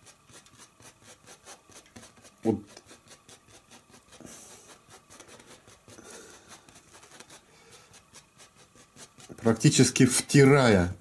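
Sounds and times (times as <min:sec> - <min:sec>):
bristle brush scrubbing canvas: 0:00.0 - 0:10.4.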